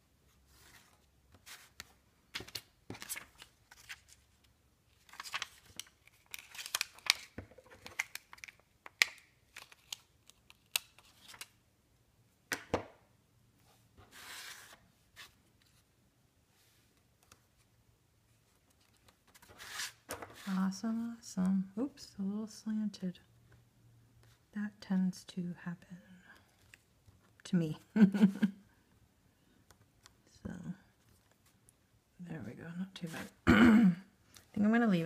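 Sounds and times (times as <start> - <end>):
paper rustling: 0.5 - 8.6, 14.0 - 15.9, 18.4 - 20.6.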